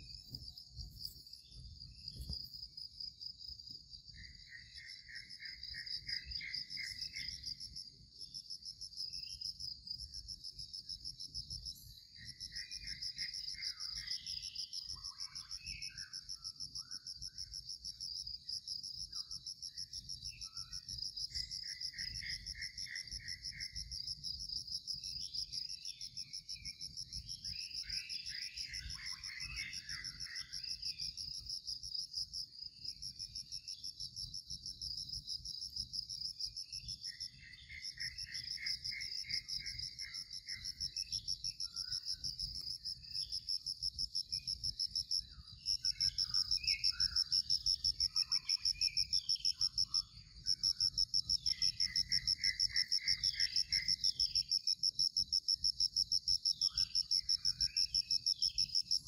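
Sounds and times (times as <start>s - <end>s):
high-pitched insect trill: 8.9s - 59.0s.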